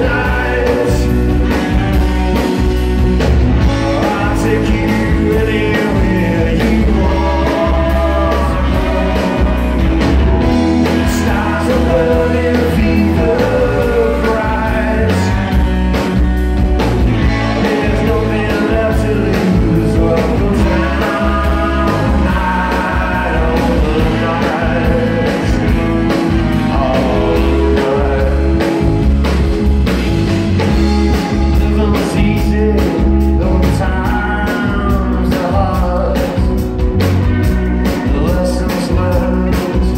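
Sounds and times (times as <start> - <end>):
person singing: 0.0 - 1.6, 3.6 - 9.8, 10.6 - 15.8, 17.3 - 25.9, 26.5 - 28.8, 30.8 - 36.7
drum kit: 0.0 - 39.9
electric bass: 0.0 - 39.9
electric guitars: 0.0 - 39.9.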